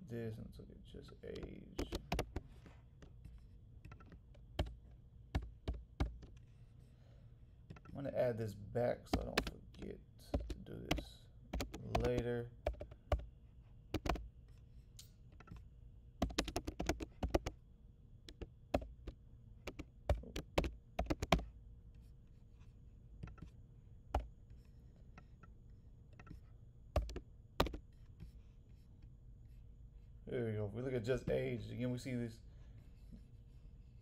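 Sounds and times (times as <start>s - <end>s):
keyboard typing: 1.3s - 6.4s, 9.0s - 13.3s, 13.9s - 14.6s, 15.3s - 17.6s, 18.3s - 21.5s, 23.2s - 24.6s, 25.2s - 27.8s.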